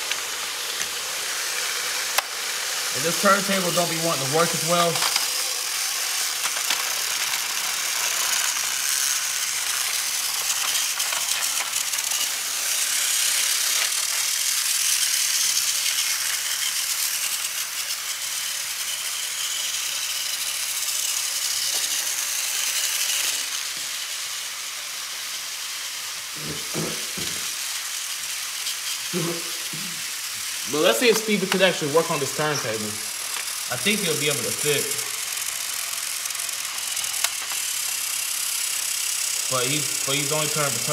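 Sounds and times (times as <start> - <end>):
toy train motors rattling: 0.0 - 40.9.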